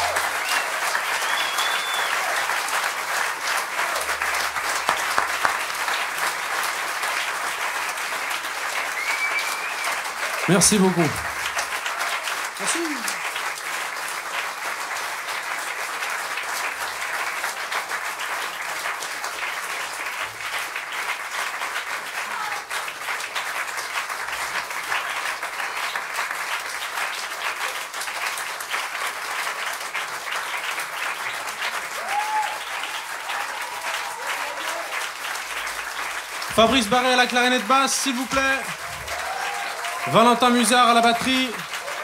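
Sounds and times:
audience applauding: 0.0s - 42.0s.

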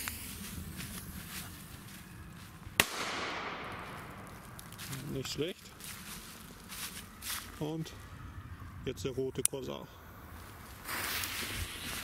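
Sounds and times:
fuse hissing: 0.0s - 1.2s
firecracker bang with echo: 2.8s - 4.3s.

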